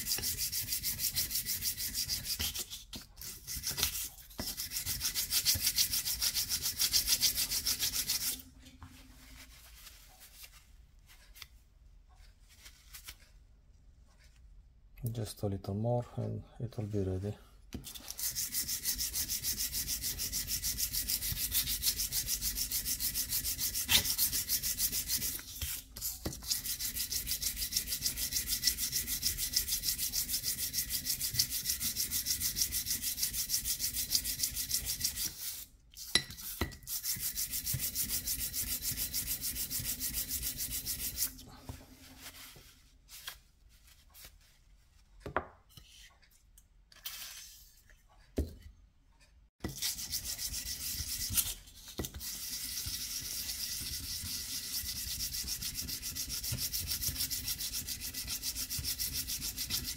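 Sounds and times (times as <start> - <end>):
metal scraping on sandpaper: 0.0 - 8.4, 17.9 - 43.4, 49.7 - 59.9.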